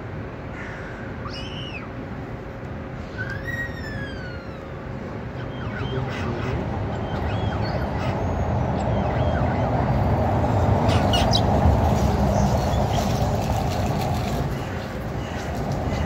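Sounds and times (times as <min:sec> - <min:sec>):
starlings chirping and whistling: 0:01.2 - 0:02.0, 0:03.0 - 0:11.6
steady low rumble: 0:04.5 - 0:16.0.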